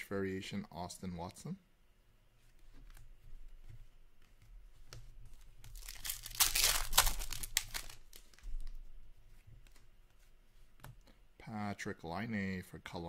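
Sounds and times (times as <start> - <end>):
foil wrapper tearing and crinkling: 5.7 - 8.4.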